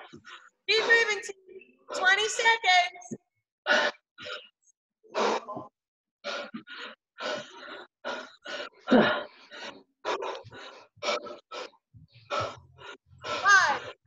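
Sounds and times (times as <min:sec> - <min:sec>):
person breathing hard and grunting: 0:05.1 - 0:14.0.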